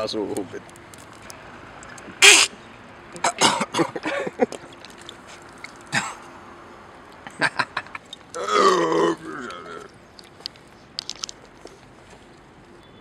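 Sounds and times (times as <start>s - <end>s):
man coughing: 3.2s - 4.4s, 5.9s - 6.2s.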